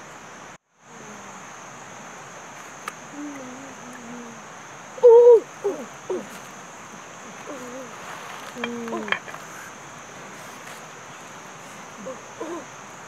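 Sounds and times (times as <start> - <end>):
steady high hiss: 0.0 - 13.0
boy hooting: 5.0 - 6.3.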